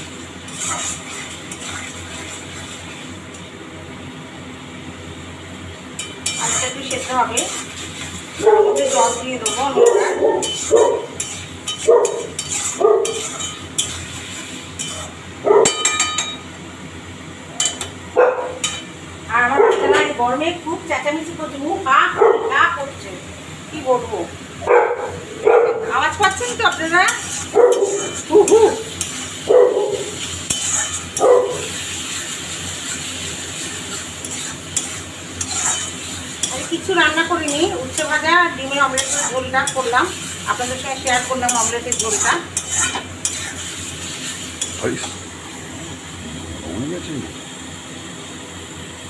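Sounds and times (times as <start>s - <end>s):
metal spatula scraping a pan: 0.4s - 3.0s, 6.0s - 16.3s, 26.2s - 29.4s, 30.1s - 45.2s
dog barking: 8.4s - 11.2s, 11.8s - 13.2s, 15.4s - 15.8s, 18.2s - 18.6s, 19.5s - 20.1s, 22.1s - 22.6s, 24.6s - 26.0s, 27.5s - 28.9s, 29.5s - 30.2s, 31.2s - 31.7s.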